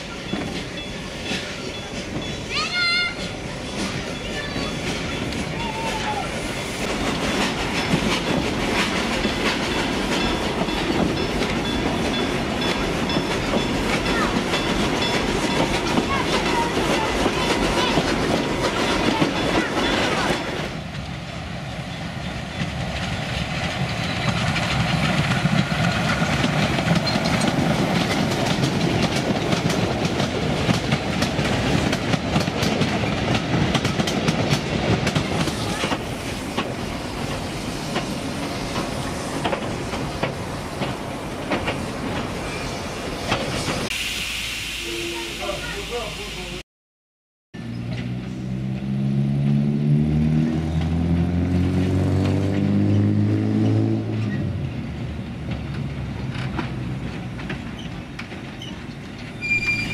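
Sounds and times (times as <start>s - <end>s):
wooden carriage rattling: 0.0s - 20.6s, 22.3s - 42.5s, 54.2s - 59.9s
train wheels clattering: 0.0s - 21.1s, 21.9s - 43.9s, 51.8s - 59.9s
steam locomotive approaching: 0.0s - 46.6s, 47.6s - 59.9s.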